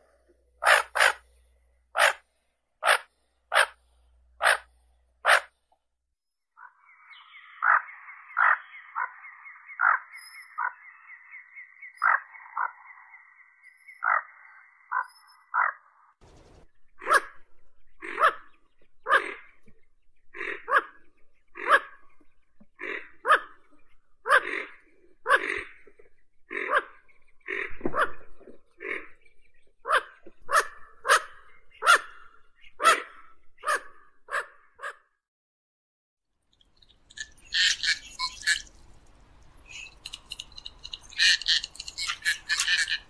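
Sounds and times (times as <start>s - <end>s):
duck calling: 4.4s - 5.5s.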